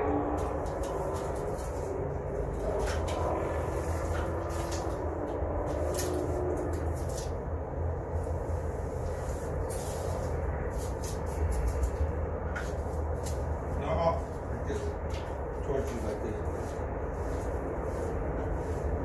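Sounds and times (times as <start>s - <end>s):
steady low rumble: 0.0s - 19.0s
broom scraping on concrete: 8.2s - 11.6s, 15.7s - 19.0s.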